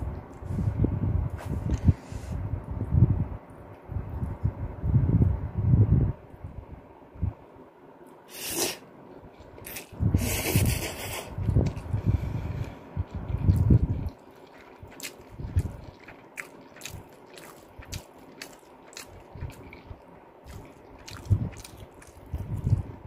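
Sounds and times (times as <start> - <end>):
chewing: 11.4 - 23.0.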